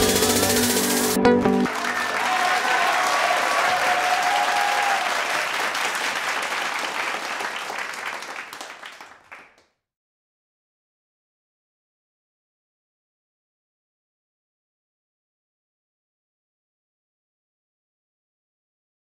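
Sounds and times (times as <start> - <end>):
crowd applause: 1.6 - 9.6.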